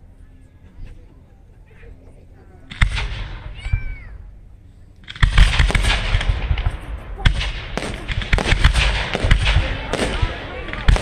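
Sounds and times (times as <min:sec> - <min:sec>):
fireworks crackling: 0:05.0 - 0:11.0.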